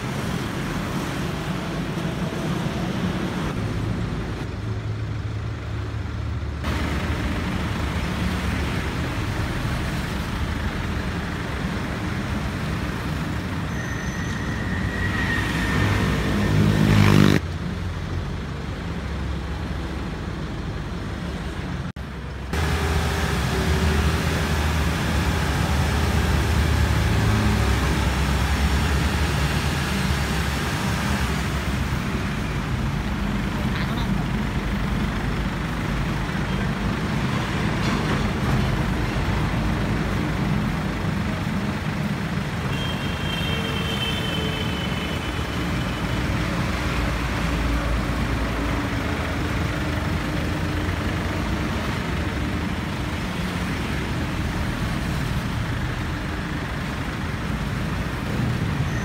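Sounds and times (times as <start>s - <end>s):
diesel truck engine revving: 22.5s - 42.6s.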